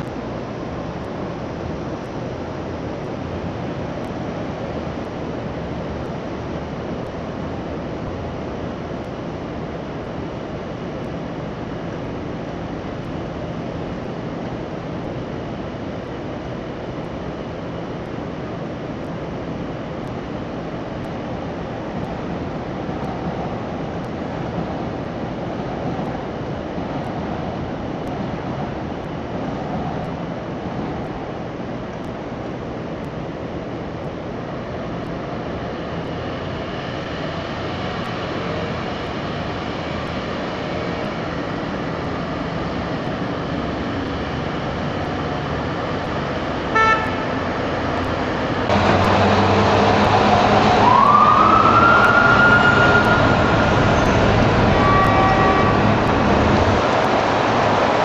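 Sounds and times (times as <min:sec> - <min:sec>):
faint hum: 0:00.0 - 0:49.3
city traffic rumble: 0:00.0 - 0:58.0.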